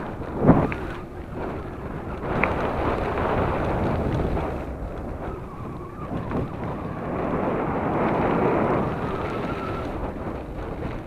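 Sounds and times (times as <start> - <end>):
bike tyres rolling on gravel: 0.0 - 11.0
wind on microphone: 0.0 - 11.0.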